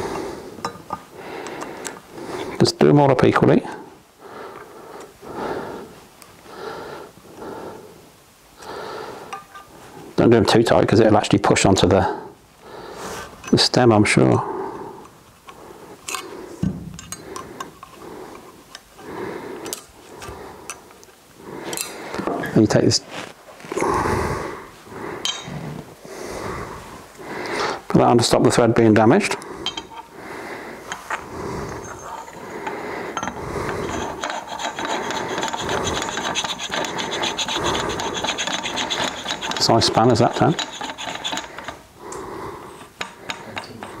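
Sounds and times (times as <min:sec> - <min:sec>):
metal rasping ticks: 0:32.2 - 0:42.2.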